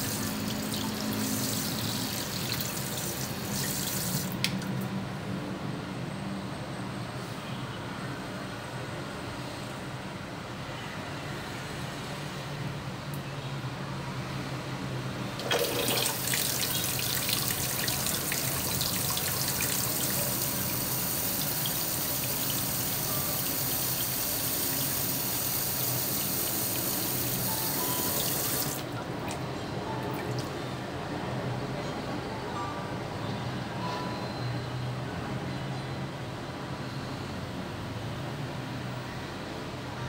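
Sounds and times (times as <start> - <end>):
tap running into steel sink: 15.4 - 17.5.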